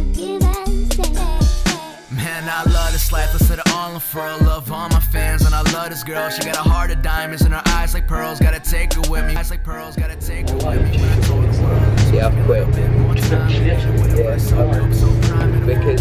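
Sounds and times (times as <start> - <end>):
hip hop music with beat: 0.0 - 16.0
deep sliding bass notes: 2.7 - 3.4, 6.7 - 16.0.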